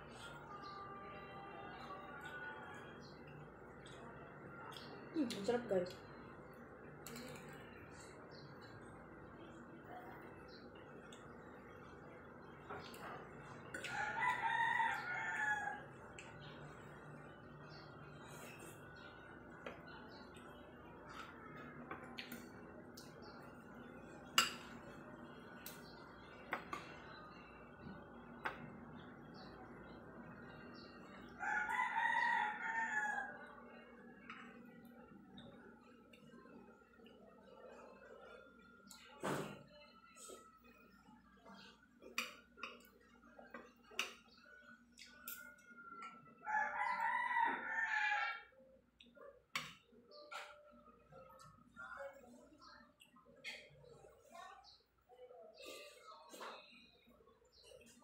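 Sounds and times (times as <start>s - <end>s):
rooster crowing: 13.8s - 15.8s, 31.4s - 33.4s, 46.4s - 48.5s.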